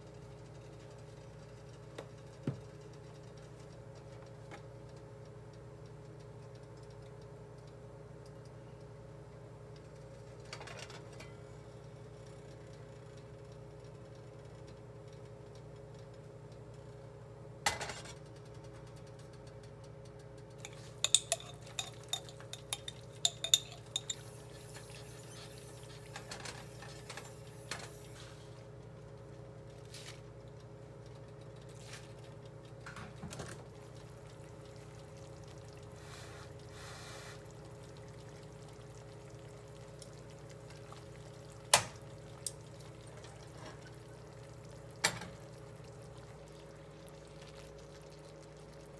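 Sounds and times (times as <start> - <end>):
steady low hum: 0.0 - 48.9
utensils and glassware clinking: 20.6 - 24.7
liquid being poured: 20.6 - 26.1, 33.6 - 48.9.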